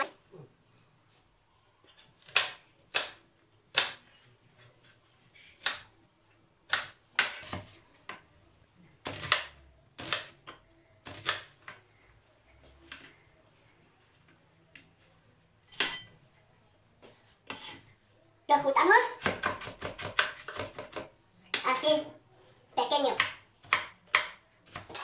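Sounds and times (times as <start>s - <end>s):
knife chopping on cutting board: 19.2s - 21.6s, 23.2s - 25.0s.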